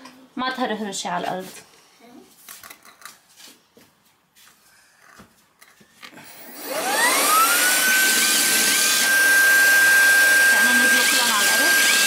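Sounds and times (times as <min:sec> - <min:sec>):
handheld vacuum cleaner whine: 0:06.1 - 0:12.0.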